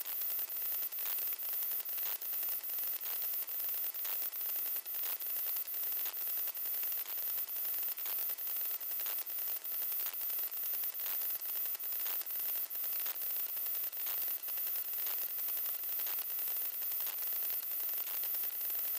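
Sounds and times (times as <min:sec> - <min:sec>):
faint regular ticks: 0:00.0 - 0:18.9.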